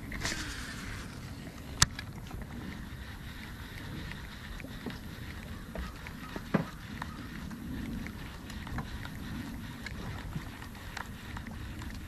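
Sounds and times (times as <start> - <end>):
wind and water rumble: 0.0 - 12.0
small clicks and knocks: 1.7 - 2.8, 4.1 - 7.2.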